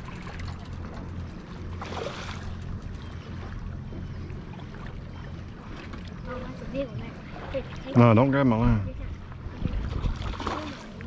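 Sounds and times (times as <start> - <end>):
low hum: 0.0 - 11.0
water lapping: 0.0 - 11.0
wind: 0.0 - 11.0
water splash: 1.7 - 2.6, 9.8 - 11.0.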